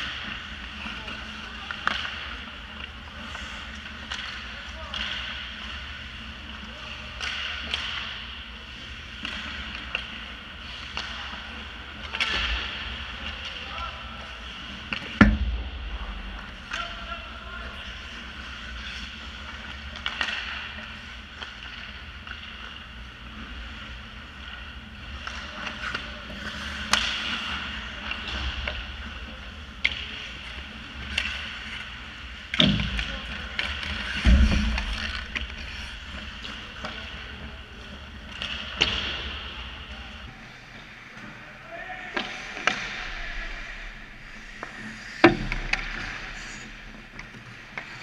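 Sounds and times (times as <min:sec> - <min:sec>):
hockey sticks and puck clacking: 0:00.0 - 0:15.5, 0:16.4 - 0:39.6, 0:42.1 - 0:48.0
heavy thumps: 0:34.2 - 0:36.4.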